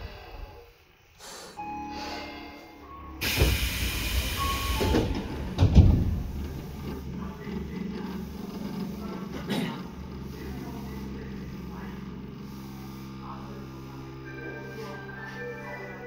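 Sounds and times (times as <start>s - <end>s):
electric train rumble: 0.0s - 16.0s
loud air hiss: 3.2s - 5.4s
heavy low thump: 4.8s - 7.1s.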